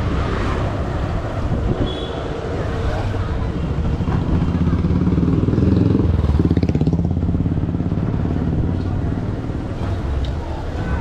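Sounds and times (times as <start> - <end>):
motorcycle engine running: 3.7 - 9.7.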